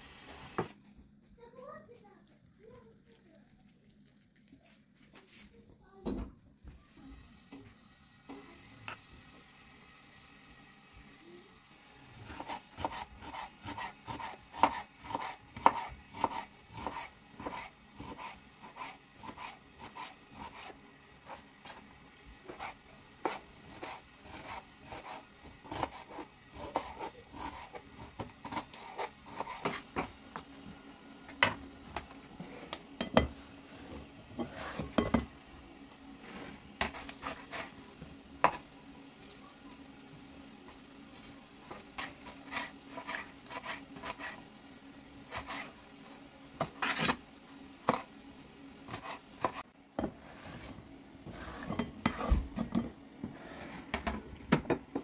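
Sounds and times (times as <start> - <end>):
knife chopping on plastic board: 12.3 - 21.8, 22.5 - 30.5, 36.8 - 37.7, 38.4 - 38.6.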